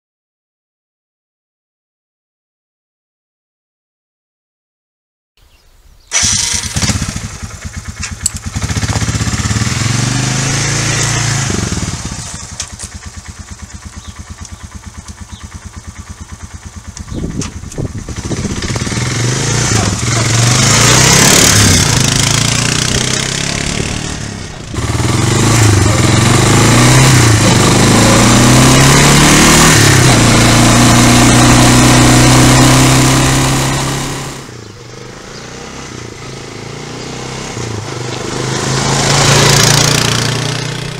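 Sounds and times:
quad bike engine revving: 6.1s - 40.9s.

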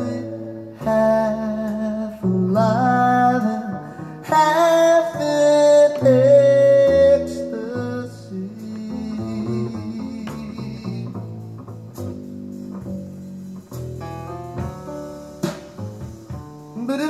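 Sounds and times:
person singing: 0.0s - 11.4s, 16.8s - 17.0s
slow guitar and bass music: 0.0s - 17.0s.

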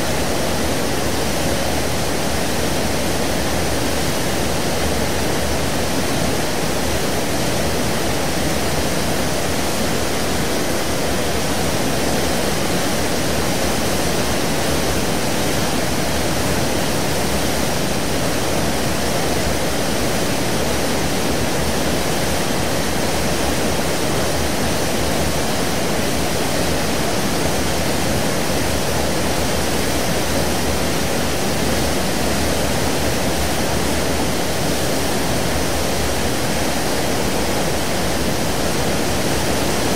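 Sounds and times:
ship wake water rushing: 0.0s - 39.9s.

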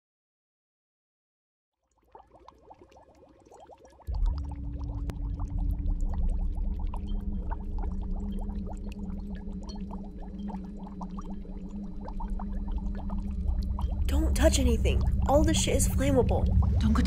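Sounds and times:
liquid bubbling in pot: 1.8s - 17.0s
loud low hum: 10.9s - 17.0s.

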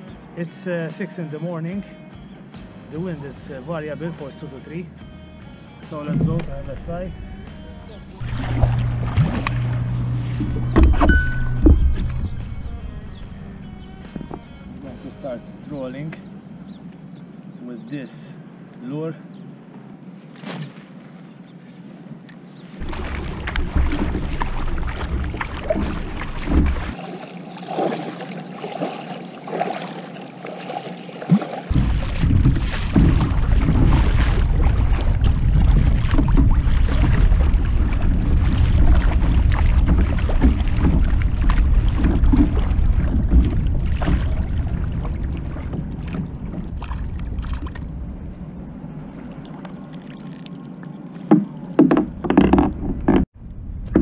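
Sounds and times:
wind rumbling on microphone: 6.1s - 14.8s, 22.8s - 27.0s, 31.7s - 54.0s
paddle strokes splashing water: 7.6s - 14.5s, 20.3s - 48.0s, 49.0s - 53.3s.

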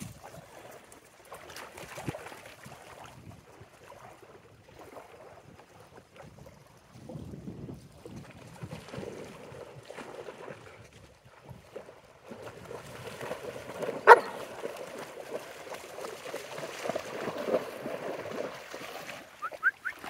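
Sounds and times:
dog barking: 14.0s - 14.4s.

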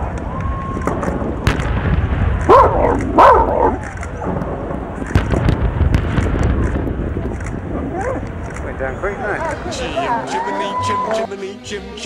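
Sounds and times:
wind rumble on microphone: 0.0s - 10.0s
dog barking: 2.5s - 3.8s.

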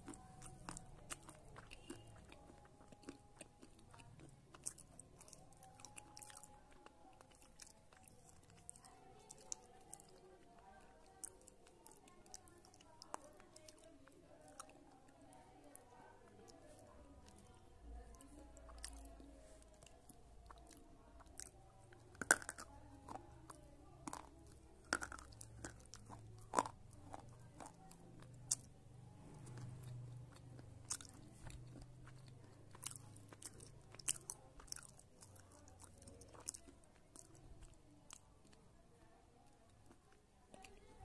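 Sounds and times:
person chewing crunchy pieces: 0.0s - 10.2s, 19.8s - 28.7s, 29.4s - 38.6s.

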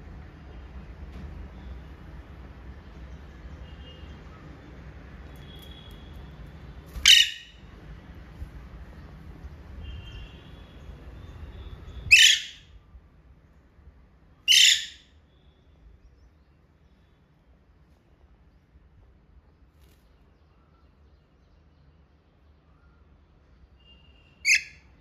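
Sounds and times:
parakeets screeching: 7.0s - 7.6s, 12.0s - 12.7s, 14.5s - 15.1s, 24.4s - 24.9s.

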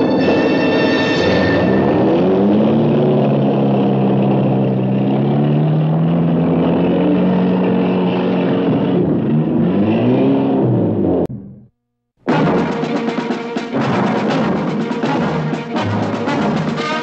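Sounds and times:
jeep engines accelerating: 1.6s - 11.6s.

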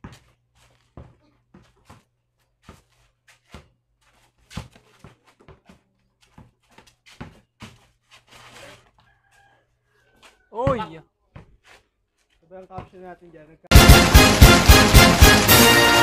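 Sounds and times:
basketball bouncing on concrete: 0.0s - 7.9s, 10.6s - 11.8s, 12.7s - 13.1s
sneaker steps scuffing: 0.0s - 9.5s, 10.2s - 13.0s.

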